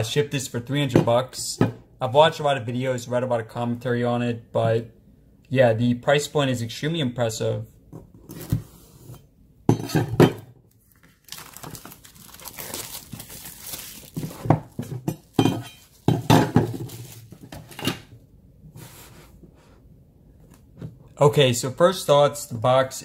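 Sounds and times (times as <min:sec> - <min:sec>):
paper sleeve rustling and tearing: 0:10.8 - 0:14.5, 0:16.8 - 0:17.5.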